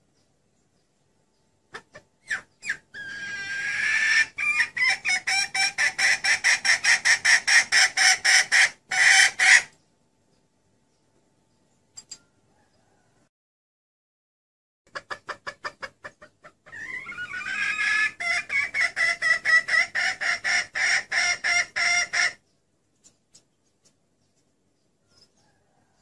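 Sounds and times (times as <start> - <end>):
hen clucking: 1.6 - 9.8, 14.9 - 22.6.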